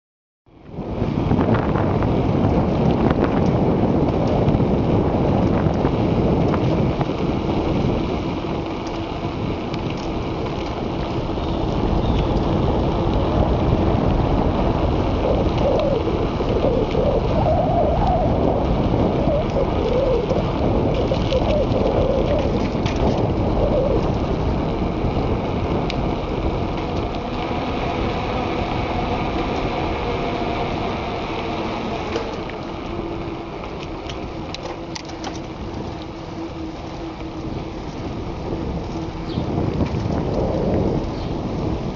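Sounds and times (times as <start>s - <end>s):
wind buffeting microphone: 0.6s - 41.9s.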